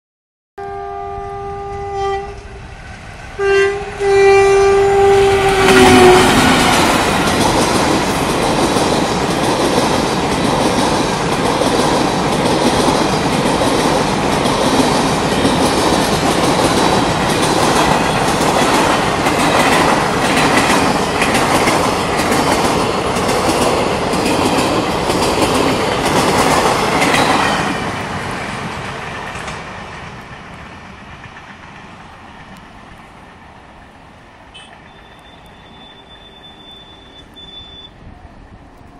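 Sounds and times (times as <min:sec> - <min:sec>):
locomotive horn blasts: 0:00.6 - 0:02.6, 0:03.4 - 0:06.5, 0:34.5 - 0:38.0
train coaches rumbling past: 0:00.7 - 0:38.9.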